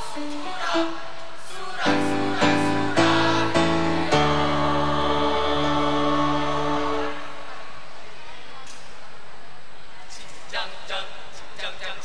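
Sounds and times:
choir singing in harmony: 0.0s - 8.1s.

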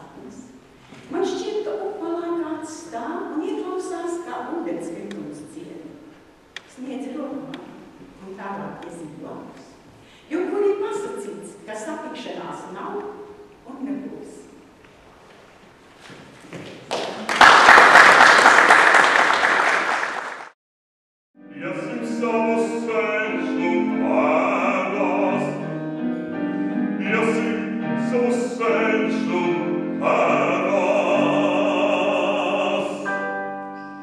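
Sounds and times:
audience applauding: 16.8s - 20.6s
man singing operatically: 21.5s - 25.7s, 27.0s - 33.2s.

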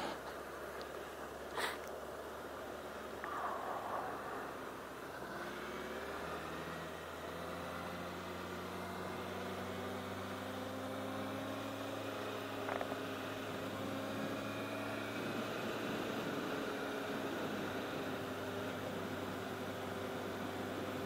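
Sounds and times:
motorcycle engine cruising: 2.8s - 21.0s
wind rush: 3.2s - 6.3s.

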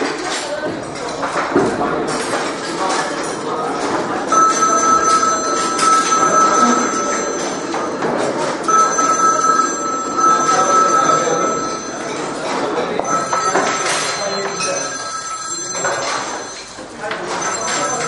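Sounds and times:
crowd chatter: 0.0s - 18.0s
telephone ringing: 4.2s - 18.0s.

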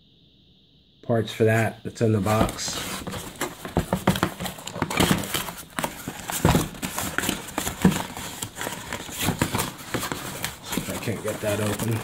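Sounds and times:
cardboard box knocks and scrapes: 2.4s - 12.0s.

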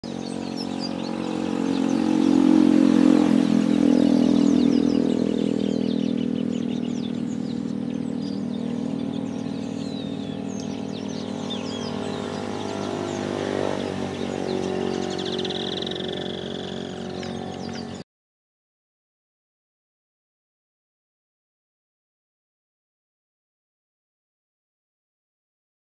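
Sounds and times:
birds chirping and chattering: 0.0s - 18.0s
vehicle engine running: 0.0s - 18.0s.

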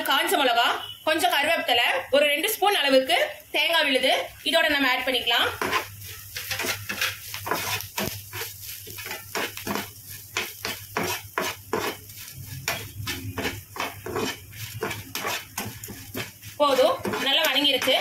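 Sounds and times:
metal spatula scraping a pan: 5.3s - 18.0s.

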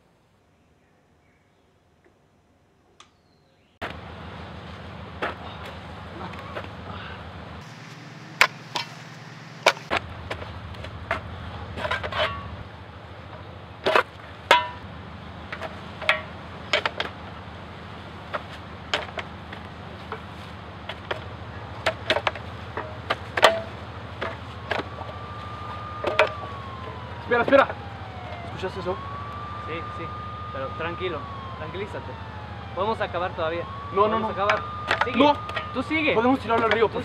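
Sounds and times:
low hum: 4.0s - 18.1s
shovels digging into dirt: 7.6s - 12.6s, 20.1s - 25.1s.

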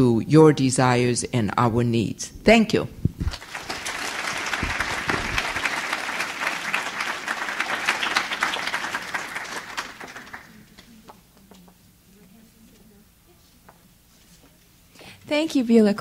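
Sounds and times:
audience applauding: 3.3s - 11.2s.

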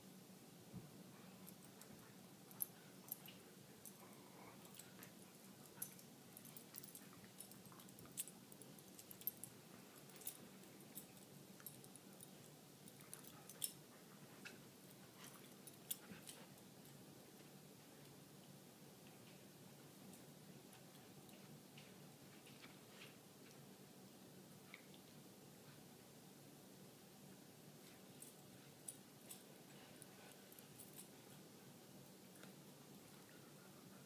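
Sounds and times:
dogs playing clicks and jingles: 1.3s - 17.0s, 27.8s - 33.7s.

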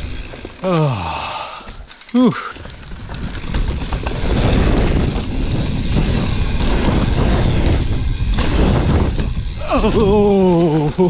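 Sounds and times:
bike rattling: 0.0s - 11.0s
bike tyres rolling on dirt: 0.0s - 11.0s
wind rushing over microphone: 2.6s - 11.0s.

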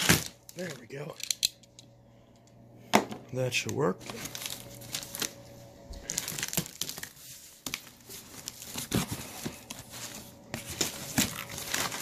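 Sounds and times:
packing material crinkling: 4.0s - 12.0s.

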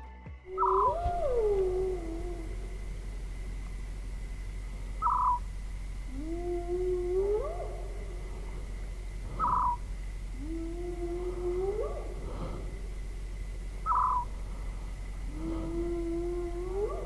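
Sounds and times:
steady low hum: 0.0s - 17.0s
hyena whooping: 0.5s - 3.2s, 5.0s - 14.4s, 15.2s - 17.0s
short sharp animal calls: 5.0s - 5.5s, 9.4s - 9.8s, 13.8s - 14.3s.

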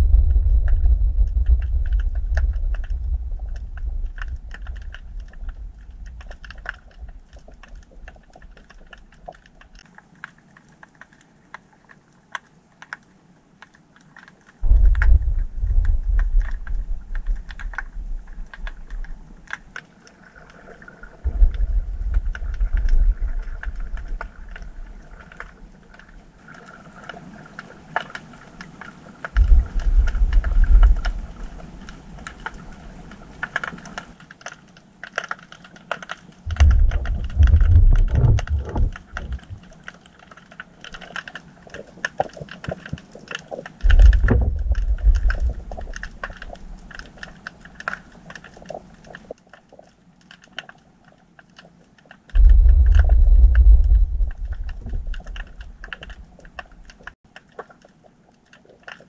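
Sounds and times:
deep low underwater rumbles: 0.0s - 9.7s, 14.6s - 19.8s, 21.1s - 26.4s, 29.4s - 33.4s, 36.5s - 39.9s, 41.8s - 49.3s, 52.4s - 57.2s
dense crackle of clicks: 0.0s - 59.0s.

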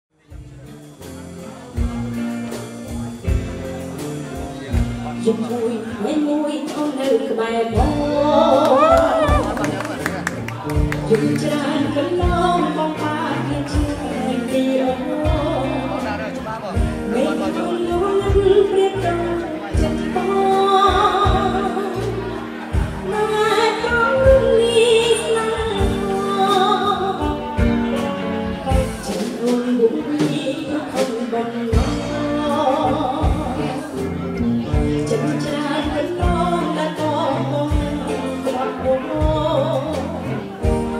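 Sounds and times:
live band playing: 0.1s - 40.9s
woman singing into microphone: 5.2s - 9.7s, 11.0s - 16.0s, 17.0s - 22.4s, 23.0s - 34.0s, 34.7s - 40.9s
electric keyboard chords: 7.7s - 40.9s
deep beat: 7.8s - 12.8s.

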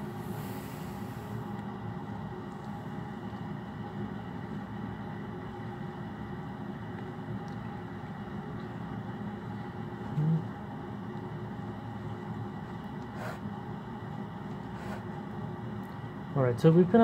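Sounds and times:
mechanical hum and hiss: 0.0s - 17.0s.

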